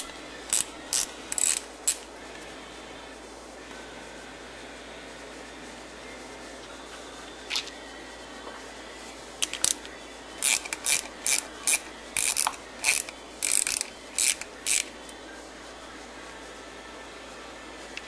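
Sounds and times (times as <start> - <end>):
ratcheting wrench clicking: 0.5 - 2.0, 10.4 - 14.9.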